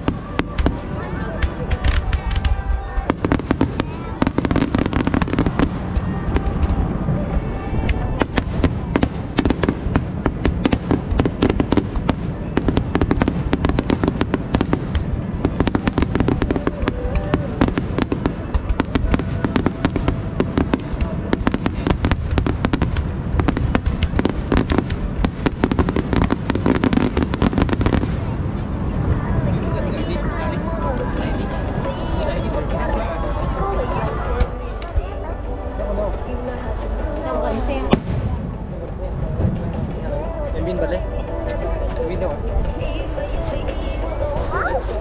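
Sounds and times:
fireworks booming rumble: 0.0s - 45.0s
fireworks cracking: 0.0s - 45.0s.

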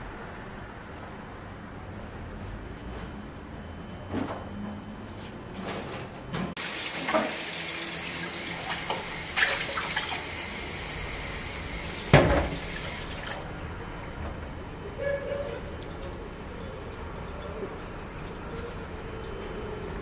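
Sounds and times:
tap water filling a glass: 6.8s - 7.6s.

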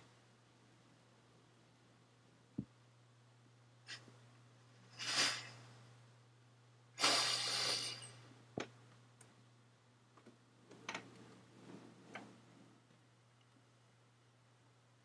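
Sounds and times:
faint clicks and taps: 10.1s - 11.4s.

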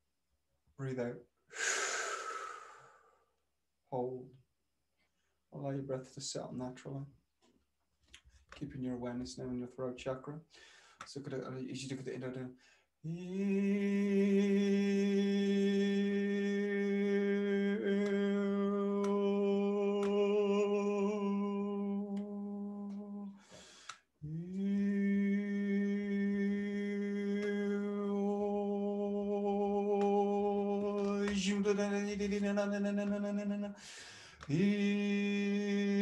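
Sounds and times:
breath in: 1.5s - 3.3s, 10.5s - 11.1s, 23.4s - 24.1s, 33.8s - 34.5s
man humming one steady note: 13.1s - 23.4s, 24.2s - 33.8s.

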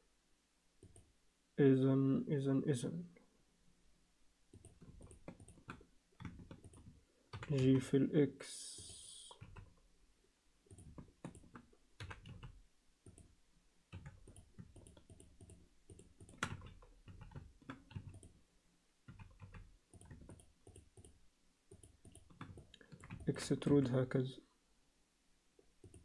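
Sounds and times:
keyboard and mouse clicks: 0.8s - 1.1s, 4.6s - 7.9s, 8.8s - 9.9s, 10.7s - 13.3s, 13.9s - 18.4s, 19.1s - 23.7s, 25.8s - 26.0s.

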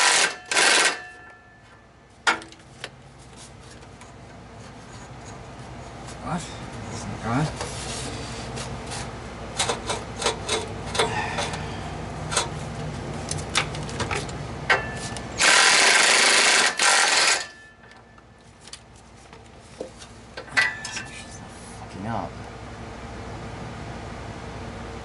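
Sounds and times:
low steady hum: 17.4s - 25.0s
metal clinks and knocks: 20.4s - 21.3s.

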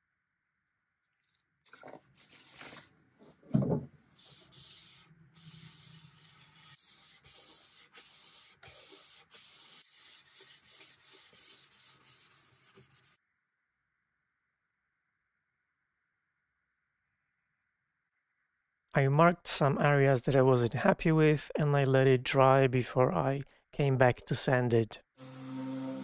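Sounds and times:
thump: 3.5s - 3.9s
cloth rubbing on wood panel: 4.2s - 13.2s.

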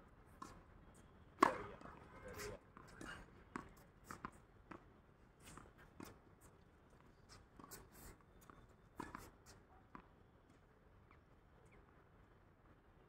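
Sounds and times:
racket striking tennis ball: 1.4s - 1.9s.

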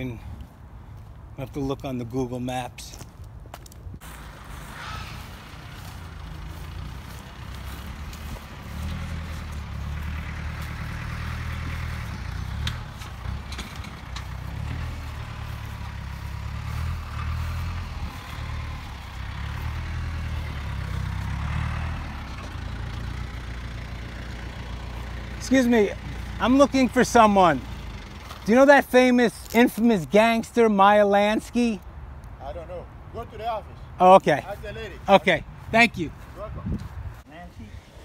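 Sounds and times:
tractor engine hum: 4.0s - 32.0s.

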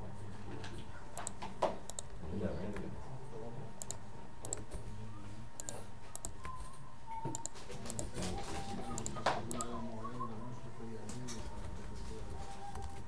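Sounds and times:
faint background music: 0.0s - 13.0s
typing on computer keyboard: 1.2s - 2.1s, 7.3s - 8.1s.

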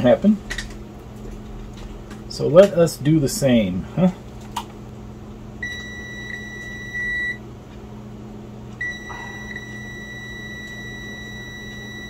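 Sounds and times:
low steady hum: 0.0s - 12.0s
multimeter continuity beep: 5.6s - 7.4s, 8.8s - 12.0s.

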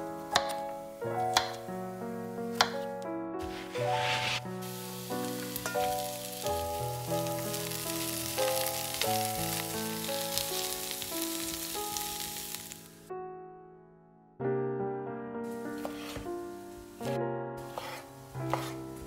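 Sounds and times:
background music: 0.0s - 19.0s
onions sizzling in oil: 3.5s - 13.0s, 15.5s - 19.0s
spatula stirring: 15.8s - 16.2s, 17.6s - 18.9s.

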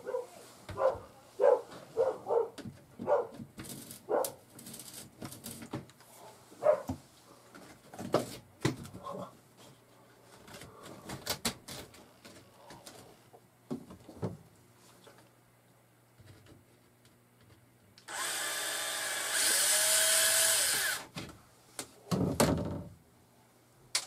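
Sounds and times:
dog barking: 0.0s - 3.4s, 4.1s - 4.4s, 6.2s - 7.0s.

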